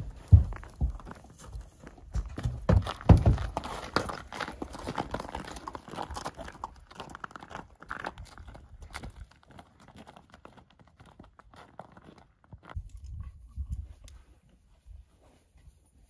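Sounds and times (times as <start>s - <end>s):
hooves thudding on trailer floor: 0.0s - 6.4s
hoof steps crunching on snow: 0.0s - 16.0s.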